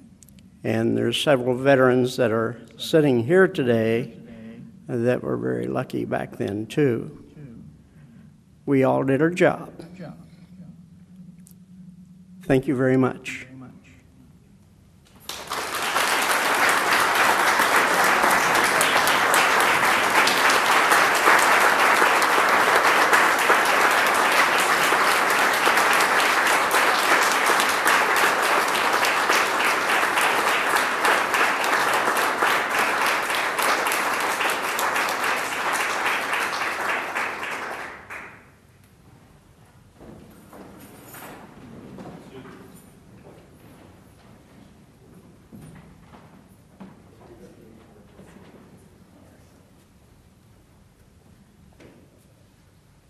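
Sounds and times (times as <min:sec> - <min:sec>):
audience applauding: 0:15.1 - 0:38.5.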